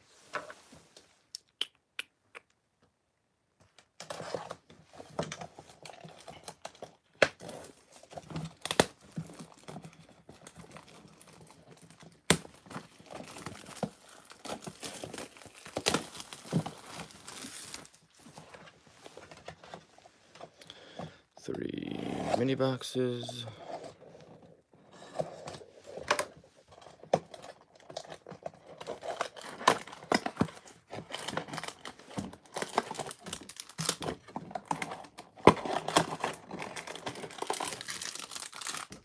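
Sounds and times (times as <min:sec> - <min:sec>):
plastic shrink-wrap tearing: 0:10.6 - 0:18.0, 0:31.2 - 0:34.2, 0:35.6 - 0:39.0.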